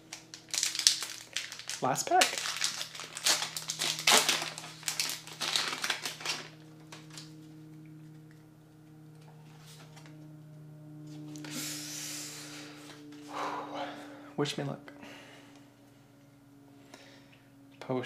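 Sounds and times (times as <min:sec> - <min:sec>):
foil pack tearing and crinkling: 0:00.0 - 0:07.3
low hum: 0:00.0 - 0:18.0
cards rustling: 0:00.1 - 0:07.4.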